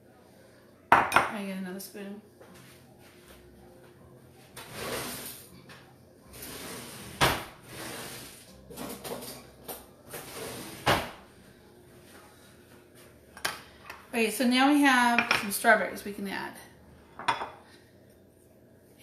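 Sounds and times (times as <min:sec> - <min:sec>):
drawer sliding open and shut: 0:06.3 - 0:09.3, 0:10.1 - 0:11.2.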